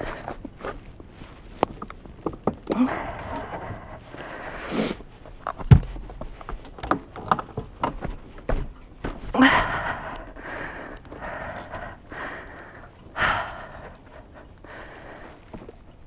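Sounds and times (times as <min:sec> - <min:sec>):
hard breathing: 0:00.0 - 0:00.9, 0:02.7 - 0:05.6, 0:09.3 - 0:15.9
scuffs clicks and knocks: 0:00.1 - 0:04.3, 0:05.0 - 0:09.4.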